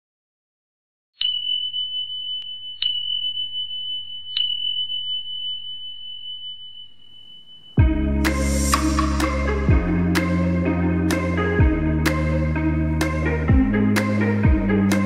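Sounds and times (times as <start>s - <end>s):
music: 7.8s - 15.0s.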